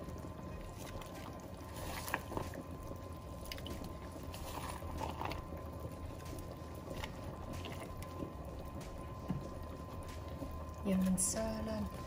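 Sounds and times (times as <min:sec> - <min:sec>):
stew bubbling in a pot: 0:00.0 - 0:12.0.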